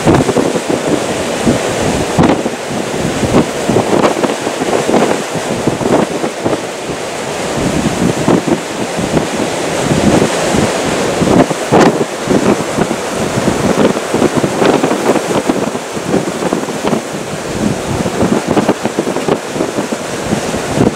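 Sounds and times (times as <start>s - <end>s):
gusty wind buffeting microphone: 0.0s - 20.9s.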